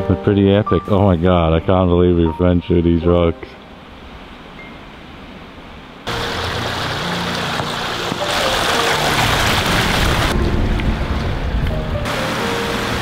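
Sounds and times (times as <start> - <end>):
background music: 0.0 - 3.9, 6.1 - 13.0
stream water running: 3.6 - 13.0.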